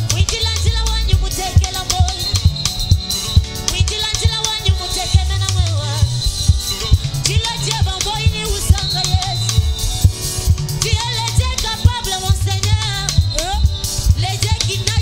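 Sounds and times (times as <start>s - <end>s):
woman singing: 0.0s - 2.6s, 3.7s - 6.2s, 7.2s - 9.7s, 10.8s - 15.0s
bass line: 0.0s - 15.0s
drum kit beat: 0.0s - 15.0s
electric guitar: 0.0s - 15.0s.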